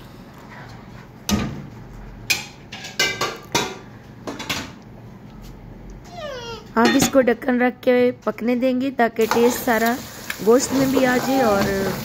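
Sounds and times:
ladle scraping metal pot: 0:10.5 - 0:12.0.

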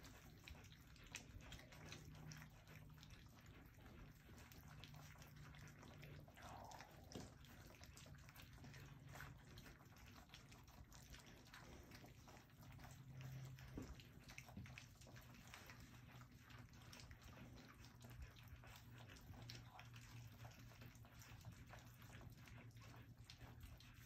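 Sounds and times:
puppies lapping and smacking: 0:00.0 - 0:24.0.

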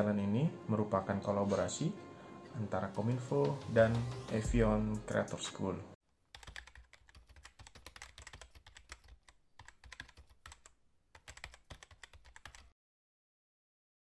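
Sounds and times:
keyboard typing: 0:06.3 - 0:12.7.

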